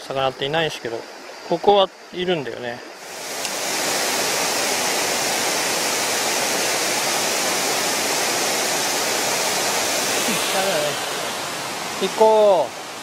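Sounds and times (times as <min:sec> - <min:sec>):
waterfall rushing: 0:02.9 - 0:13.0.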